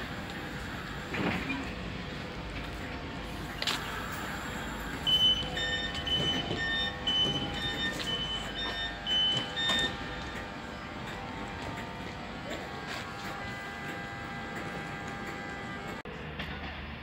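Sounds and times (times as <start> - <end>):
train humming: 0.0 - 17.0
electronic warning beeps: 4.9 - 10.4.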